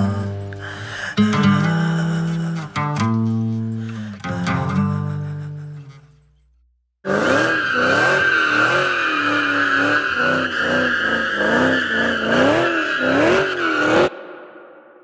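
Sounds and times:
car engine revving: 7.0 - 14.1
tires squealing: 7.1 - 14.1.

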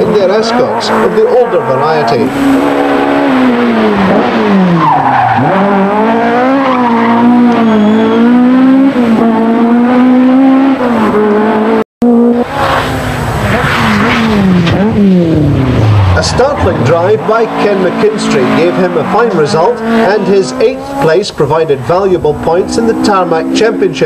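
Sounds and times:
rally car engine revving past: 0.0 - 23.7
tyre squeal: 4.7 - 8.4.

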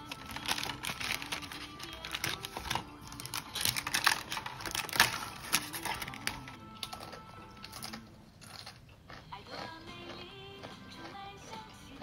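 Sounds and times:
brownie sheet snapping: 0.1 - 6.5.

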